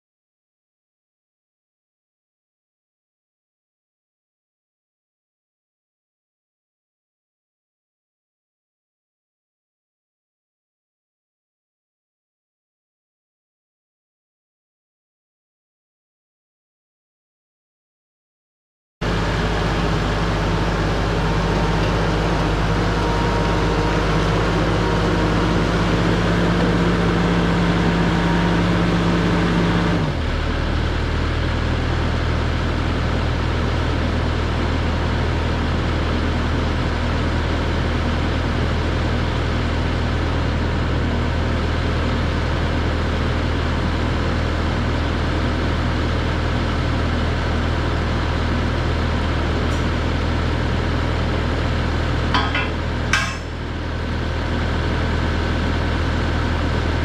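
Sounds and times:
diesel engine idling: 19.0 - 37.9, 46.5 - 57.0.

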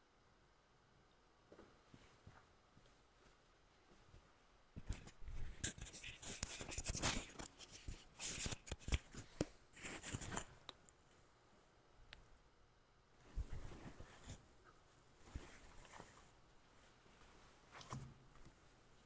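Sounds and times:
cloth rustling: 4.8 - 10.6, 13.2 - 19.0.

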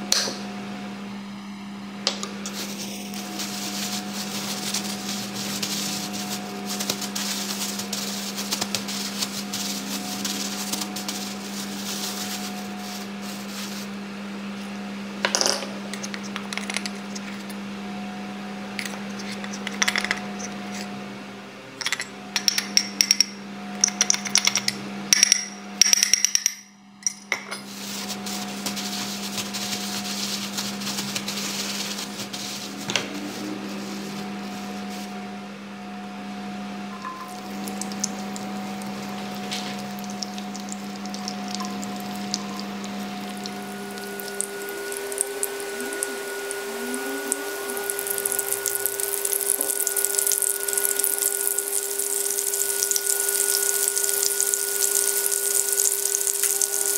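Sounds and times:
plastic bag crinkling: 2.5 - 13.9, 28.0 - 34.9, 37.2 - 56.9.

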